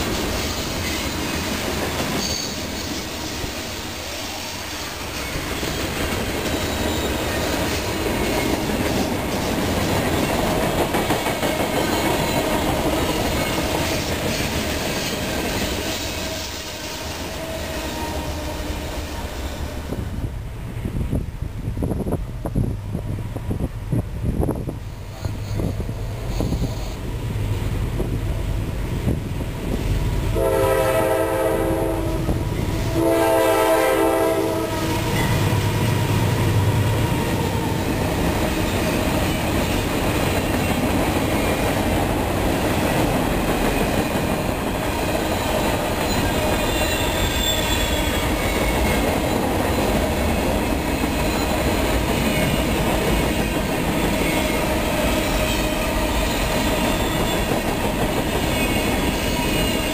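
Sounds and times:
train wheels clattering over rails: 0.0 - 20.0, 31.9 - 59.9
locomotive horn blasts: 30.4 - 35.2.

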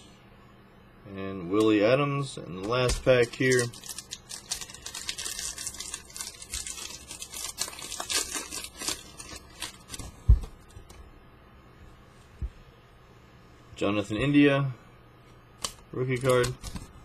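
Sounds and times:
wrapper tearing and crinkling: 2.9 - 10.1.

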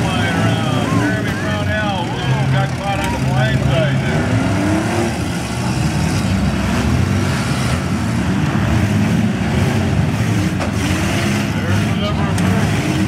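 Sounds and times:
many engines revving: 0.0 - 13.0.

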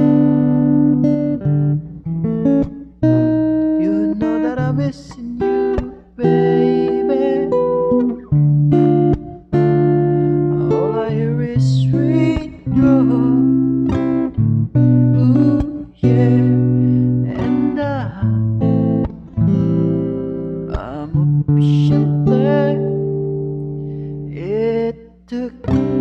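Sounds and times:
acoustic guitar strumming chords: 0.0 - 26.0
man singing: 3.7 - 8.2, 10.5 - 13.7, 15.0 - 18.6, 20.7 - 23.1, 24.3 - 26.0.

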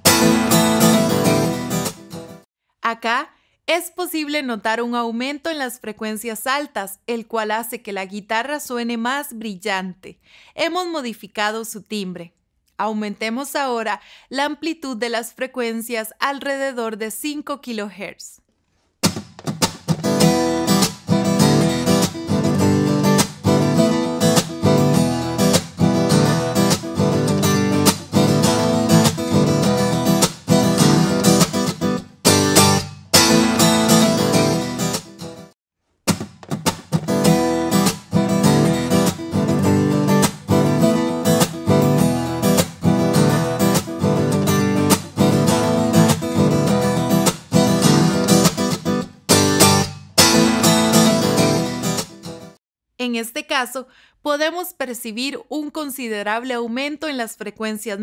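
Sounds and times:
acoustic guitar strumming chords: 0.0 - 2.4, 19.0 - 35.5, 36.1 - 52.6.

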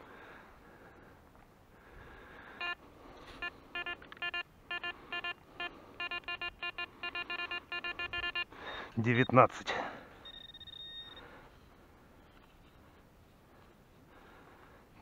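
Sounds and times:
metal detector beeps: 2.6 - 2.8, 3.4 - 9.6, 10.2 - 11.3.

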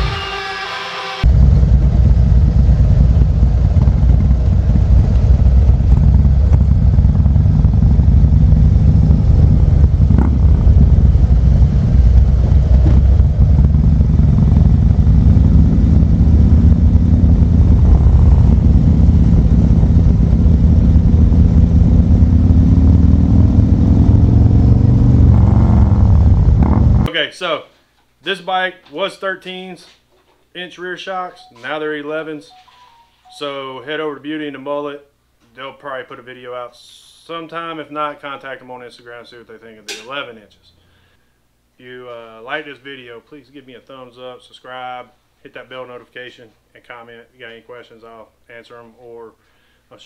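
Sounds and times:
motorcycle engine running: 1.2 - 27.1
road rumble: 1.2 - 27.1
wind noise: 16.6 - 23.2.

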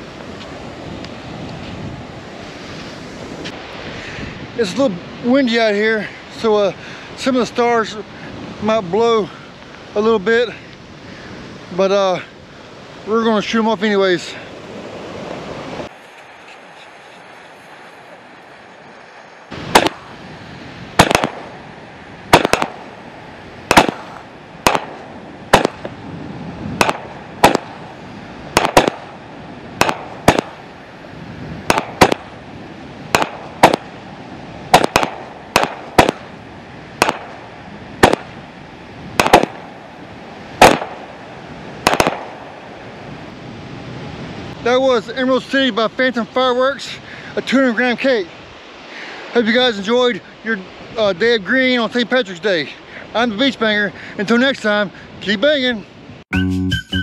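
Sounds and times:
firework bursting reports: 15.5 - 43.3
firework launch thumps: 19.6 - 20.0, 21.0 - 21.5, 22.3 - 22.8, 23.7 - 26.0, 26.8 - 27.8, 28.6 - 29.1, 29.8 - 30.6, 31.6 - 32.3, 33.1 - 33.9, 34.7 - 36.3, 38.0 - 38.4, 39.2 - 39.6, 41.8 - 42.4.

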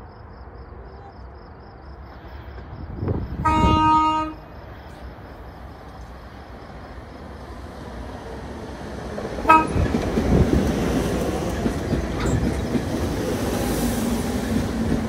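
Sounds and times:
train rumbling past: 0.8 - 15.0
train horn toot: 3.4 - 4.4, 9.4 - 10.0.

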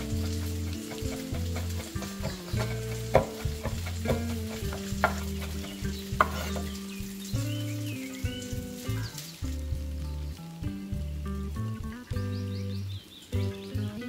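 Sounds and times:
knife chopping on wooden board: 0.0 - 6.7
leaves rustling: 0.0 - 14.0
soft background music: 0.0 - 14.0.

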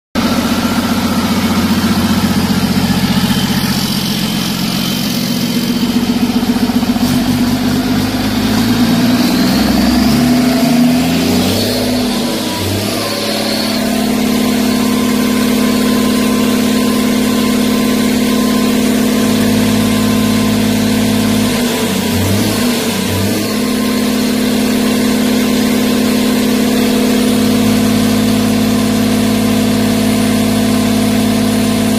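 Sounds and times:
diesel engine running: 0.2 - 31.9.

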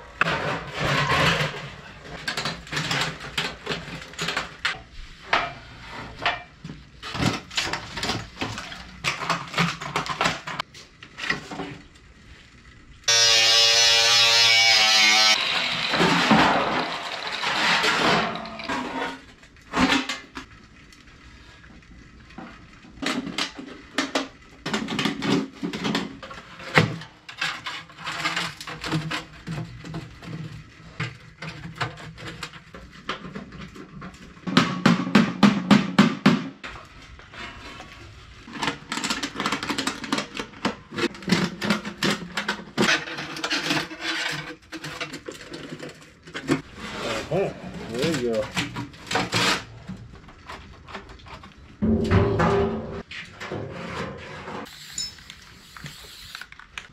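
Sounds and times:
sheet steel clanking and scraping: 0.1 - 6.6, 15.8 - 20.4, 40.8 - 54.7.

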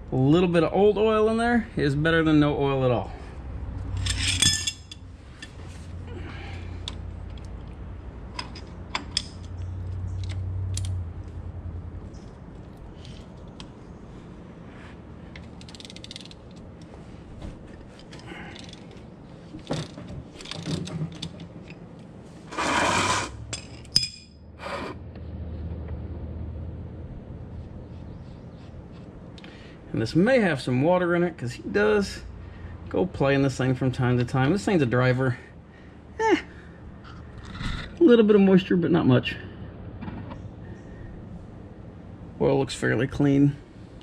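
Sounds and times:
ratchet and wrench clicking: 15.6 - 16.6.

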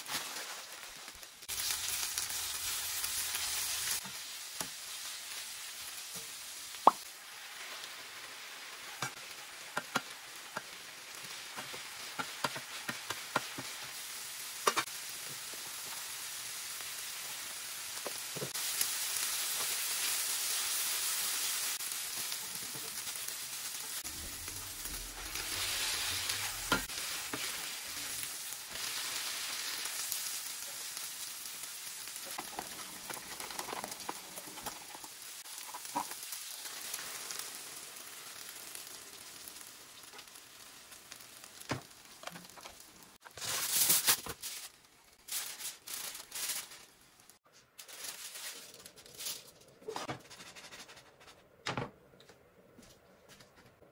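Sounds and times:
aluminium foil crinkling: 0.0 - 4.0, 18.5 - 37.6, 38.2 - 50.0
food sizzling in a frying pan: 0.0 - 48.8.

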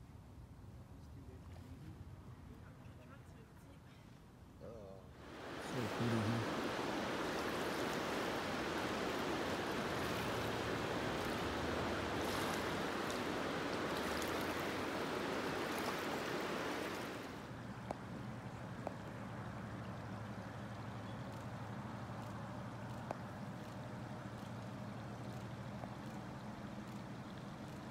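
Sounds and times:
flowing river water: 5.2 - 27.9.

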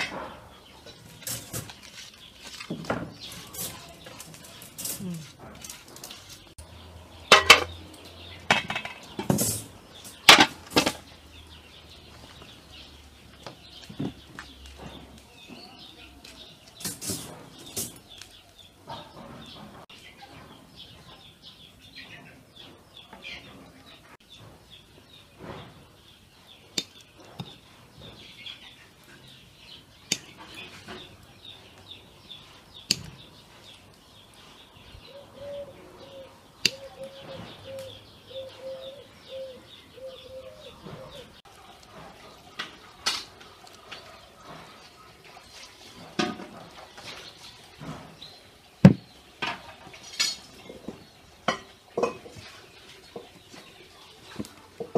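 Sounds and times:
colander clattering against pots: 0.0 - 6.6, 7.2 - 11.1, 16.6 - 18.2, 45.5 - 54.9
birds chirping faintly: 0.0 - 54.9.

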